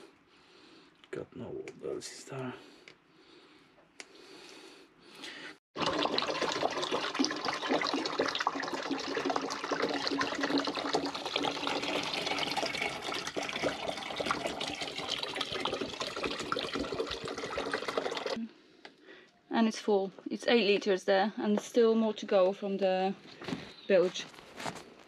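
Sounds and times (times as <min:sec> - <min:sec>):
water gushing into a plastic bottle: 0:05.8 - 0:18.5.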